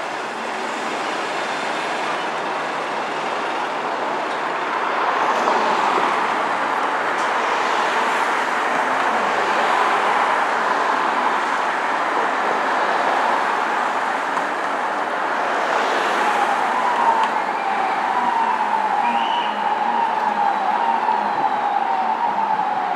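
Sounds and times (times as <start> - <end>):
road traffic noise: 0.0 - 22.9
distant siren: 15.8 - 22.9.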